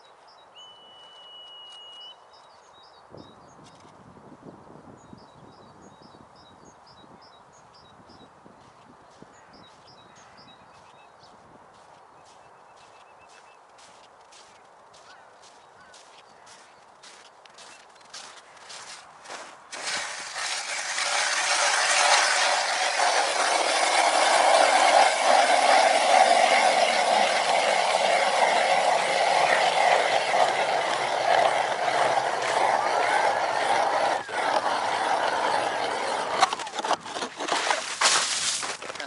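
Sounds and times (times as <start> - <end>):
ice auger grinding through ice: 15.4 - 39.0.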